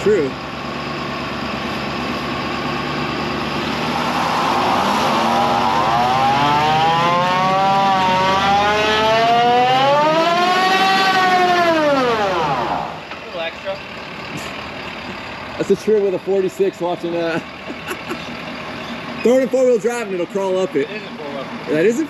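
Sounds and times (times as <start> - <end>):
tyres spinning on asphalt: 0.0 - 6.4
pickup engine revving: 0.0 - 13.1.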